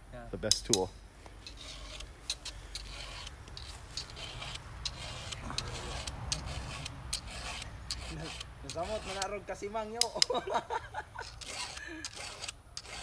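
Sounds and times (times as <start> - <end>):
file strokes sharpening chainsaw chain: 1.4 - 9.4, 11.2 - 13.0.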